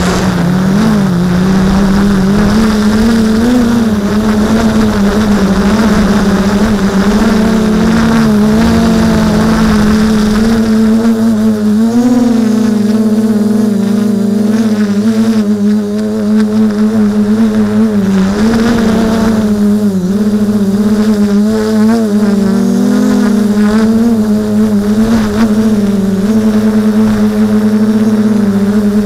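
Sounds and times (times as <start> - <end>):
gusts of rushing wind noise: 0.0 - 11.9, 16.5 - 21.4
drone propellers buzzing: 0.0 - 29.0.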